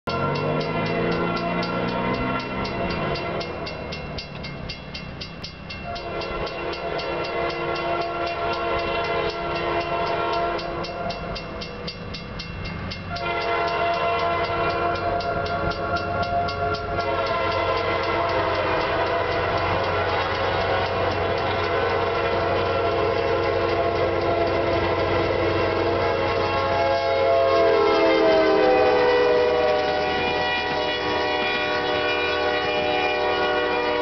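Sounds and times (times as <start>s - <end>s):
low locomotive rumble: 0.0s - 34.0s
crossing bell dinging: 0.1s - 34.0s
locomotive air horn blasts: 5.8s - 11.3s, 13.1s - 34.0s.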